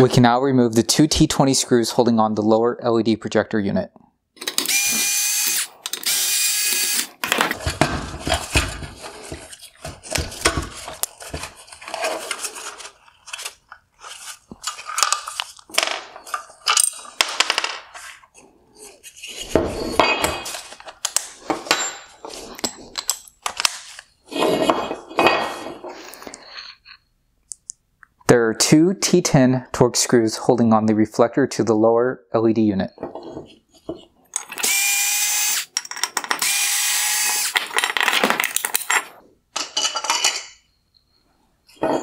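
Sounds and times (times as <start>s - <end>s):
electric screwdriver spinning: 4.4s - 7.2s, 34.5s - 35.7s, 36.4s - 37.6s
plastic and metal parts clattering: 7.2s - 18.2s, 37.3s - 40.6s.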